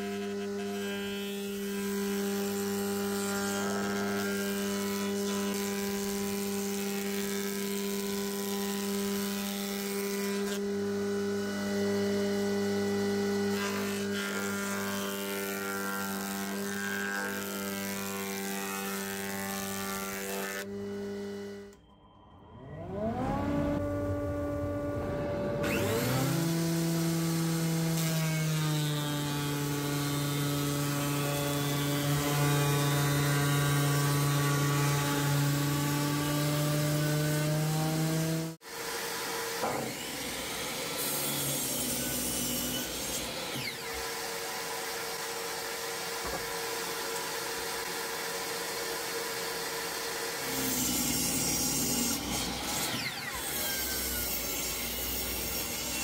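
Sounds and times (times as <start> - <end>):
jointer-planer cutting wood: 0.0 - 21.8, 25.6 - 56.0
thickness planer motor whine: 0.0 - 56.0.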